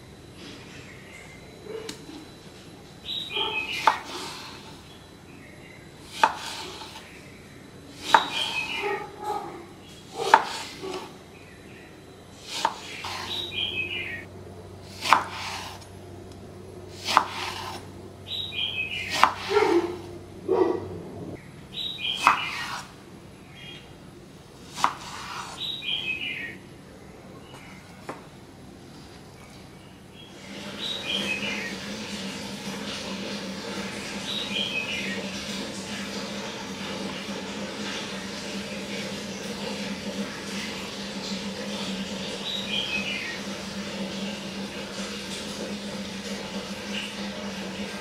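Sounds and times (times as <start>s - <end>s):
knife slicing fruit: 3.6s - 4.8s, 6.0s - 7.2s, 8.0s - 8.8s, 10.1s - 11.1s, 12.4s - 13.5s, 14.8s - 15.9s, 16.9s - 17.9s, 19.0s - 20.1s, 22.1s - 23.0s, 24.6s - 25.7s.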